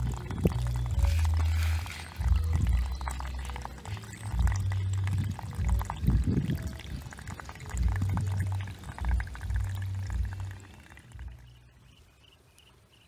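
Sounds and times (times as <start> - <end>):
water sloshing and pouring: 0.0 - 11.5.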